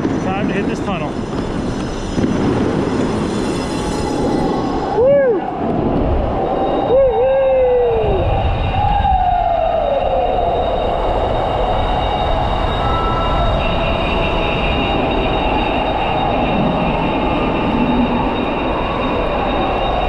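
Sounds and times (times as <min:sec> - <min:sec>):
wind and road noise: 0:00.0 - 0:20.0
scooter motor whine: 0:01.3 - 0:20.0.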